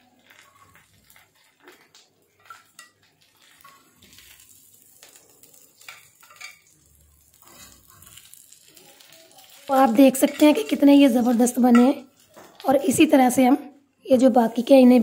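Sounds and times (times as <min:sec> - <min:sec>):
metal tongs scraping a griddle: 0:07.3 - 0:12.6.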